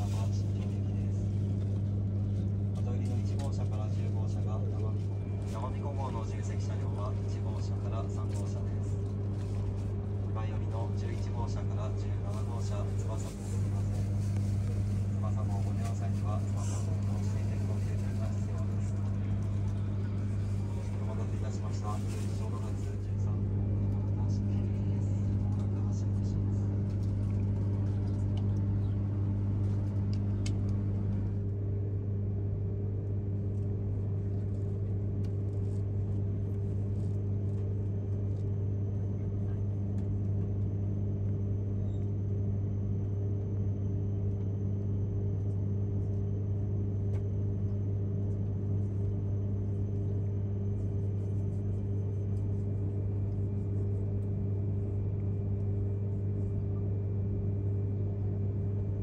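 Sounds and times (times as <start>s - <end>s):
train carriage hum: 0.0s - 59.0s.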